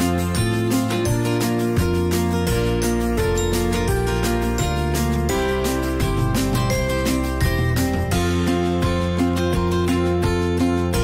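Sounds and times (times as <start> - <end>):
instrumental music with steady beat: 0.0 - 11.0.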